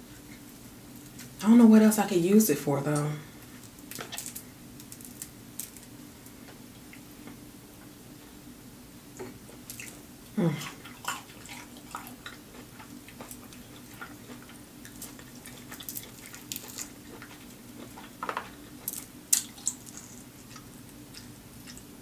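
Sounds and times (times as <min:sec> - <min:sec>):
steady low hum: 0:00.0 - 0:22.0
wet chewing and lip smacking: 0:10.6 - 0:21.9.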